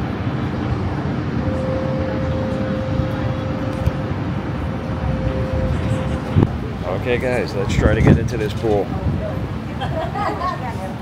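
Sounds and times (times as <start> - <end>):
faint steady hum: 0.0 - 7.2
distant city traffic roar: 0.0 - 11.0.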